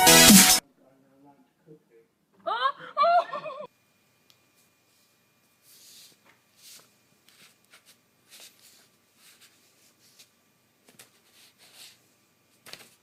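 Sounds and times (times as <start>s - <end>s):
paper rustling and scratching: 5.6s - 13.0s.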